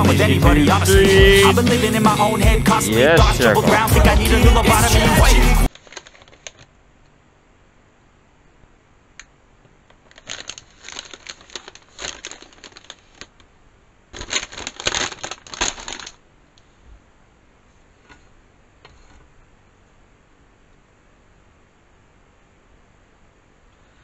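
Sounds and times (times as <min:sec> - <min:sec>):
foil snack bag crinkling: 0:05.7 - 0:06.7, 0:09.9 - 0:13.5, 0:14.1 - 0:16.2.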